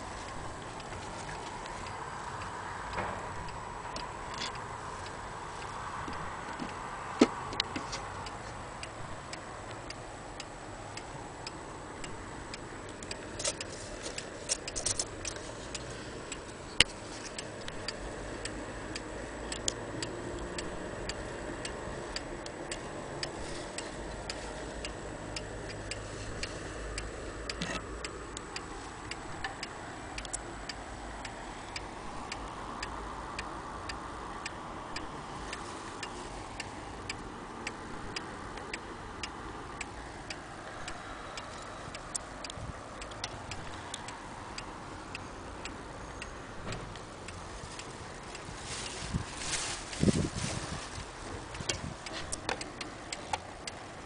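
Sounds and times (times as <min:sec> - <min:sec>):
clock ticking: 0:00.0 - 0:48.5, 0:51.0 - 0:54.0
sharp clock click: 0:07.6 - 0:35.2, 0:36.0 - 0:47.4.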